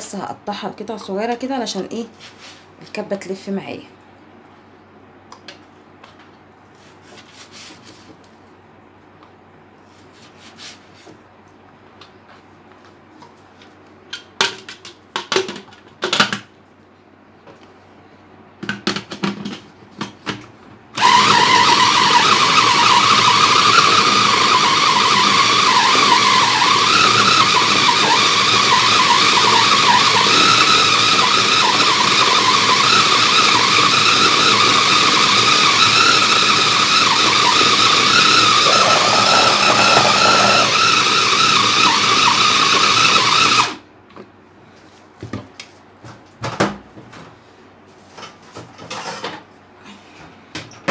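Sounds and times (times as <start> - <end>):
food chopper motor whining: 21.0 - 43.8.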